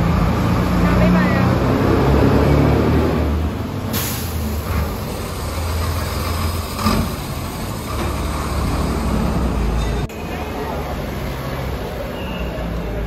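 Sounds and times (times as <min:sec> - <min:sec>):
truck diesel engine rumble: 0:00.0 - 0:13.0
short hiss: 0:03.9 - 0:04.5.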